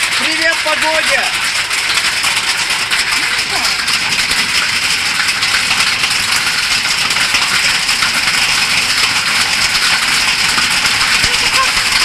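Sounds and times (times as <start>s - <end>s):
hail pelting down: 0.0s - 12.0s.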